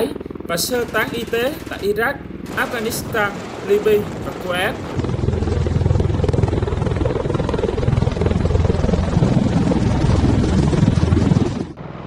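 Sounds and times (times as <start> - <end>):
tiltrotor aircraft rotor throb: 0.0 - 12.0.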